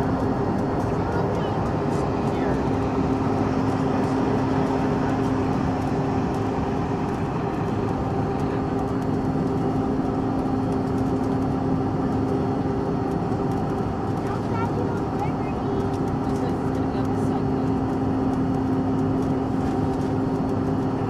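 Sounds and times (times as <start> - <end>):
constant hum tones: 0.0 - 21.0
jet engines droning: 0.0 - 21.0.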